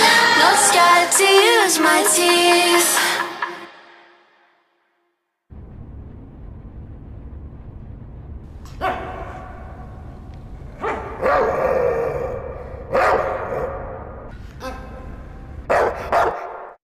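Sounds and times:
low rumble: 5.5 - 15.8
dog barking: 8.7 - 9.8, 10.8 - 14.0, 15.7 - 16.8.

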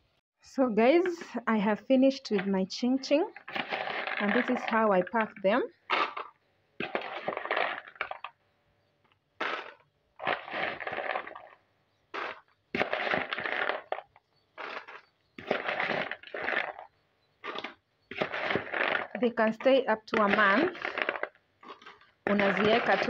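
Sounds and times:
crunchy snacks clattering: 3.1 - 8.4, 9.0 - 23.0
metal spoon scooping from plastic bowl: 3.3 - 8.3, 9.4 - 23.0.

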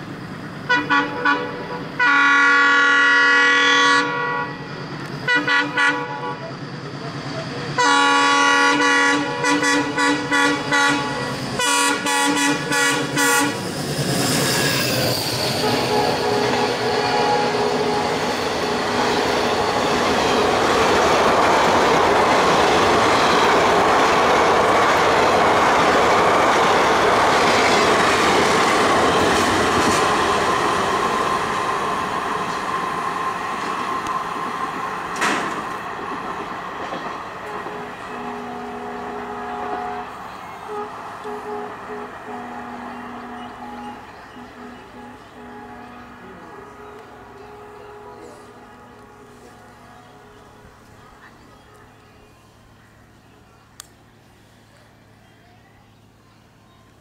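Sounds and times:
train wheels rumbling on rail: 0.0 - 55.2
diesel locomotive horn: 0.6 - 6.6, 7.7 - 31.6, 37.3 - 52.0.

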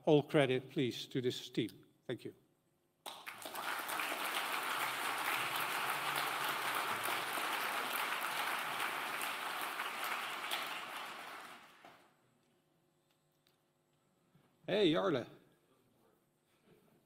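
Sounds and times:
audience applauding: 3.1 - 12.1.

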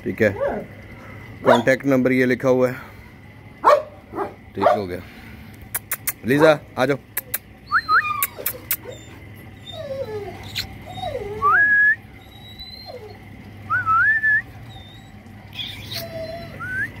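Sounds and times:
dog whining: 7.2 - 17.0
person whistling to dog: 11.4 - 12.0, 13.7 - 14.4.

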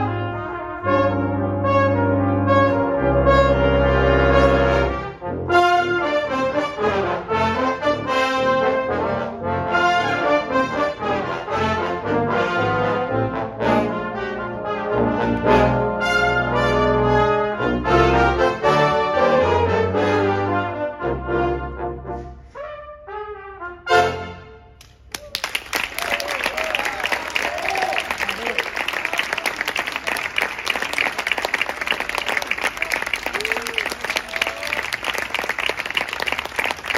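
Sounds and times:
brass ensemble playing: 0.0 - 24.8.

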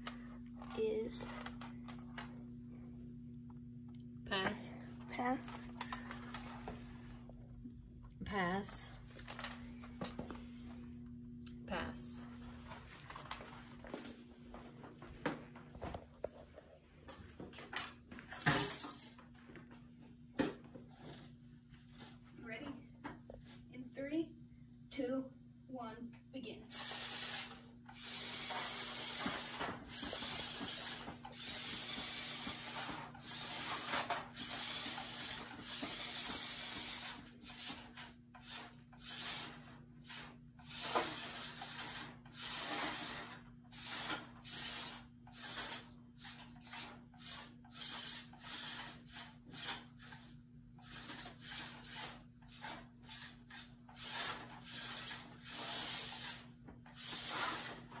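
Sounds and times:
steady low hum: 0.0 - 58.0
robot motors whirring: 26.7 - 57.9.

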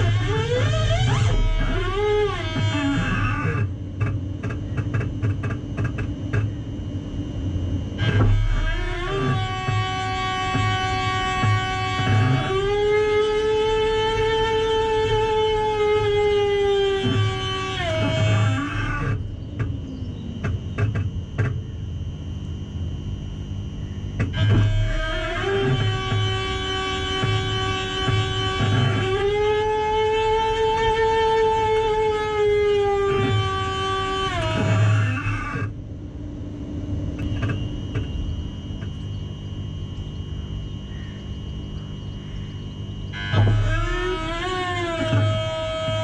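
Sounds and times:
electric train whining tones: 0.0 - 46.0
burst of noise: 8.0 - 19.3, 24.2 - 35.8, 43.1 - 46.0.

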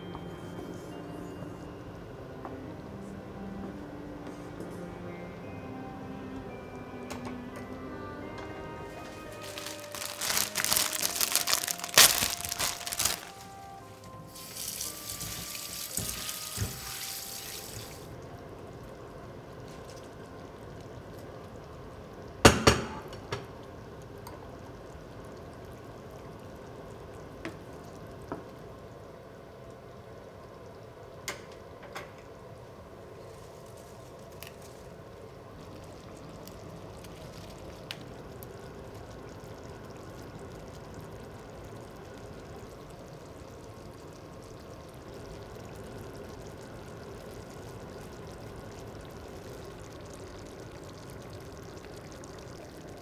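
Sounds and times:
light background music: 0.0 - 18.1
sauce simmering in a frying pan: 8.2 - 53.0.

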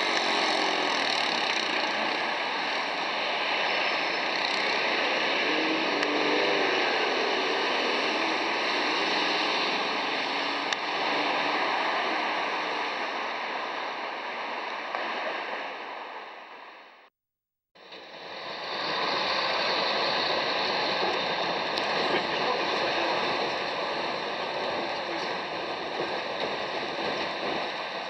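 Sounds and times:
bus running and road noise: 0.0 - 17.0, 17.8 - 28.0
street traffic noise: 0.0 - 17.1, 17.8 - 28.0.

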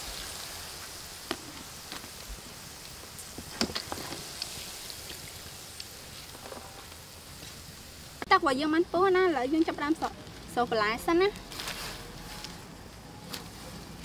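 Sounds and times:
hot oil sizzling in a wok: 0.0 - 13.0
oil crackles and pops: 0.0 - 14.0.

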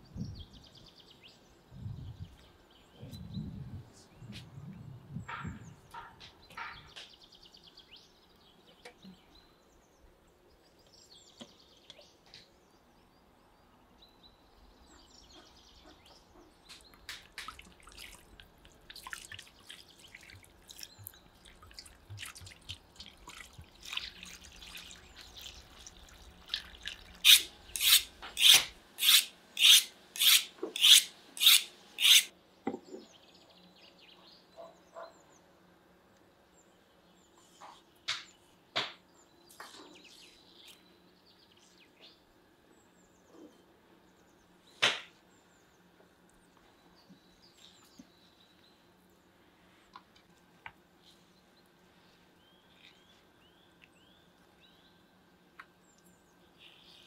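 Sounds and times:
water splashing and trickling: 17.0 - 27.7
loud rasping strokes: 27.3 - 32.3.

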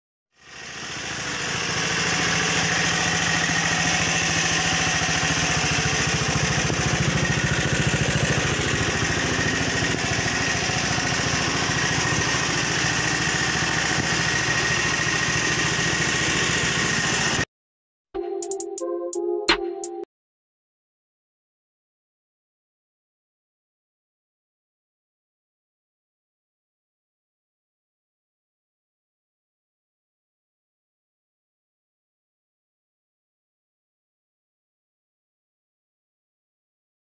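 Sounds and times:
small engine idling: 0.4 - 17.5.

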